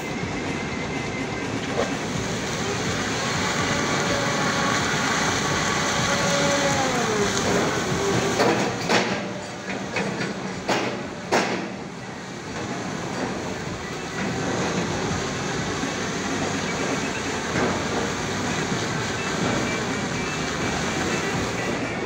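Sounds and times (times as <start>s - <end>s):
falling whine: 0.0s - 8.9s
truck diesel engine straining: 0.0s - 22.0s
sharp knocks: 10.0s - 11.8s.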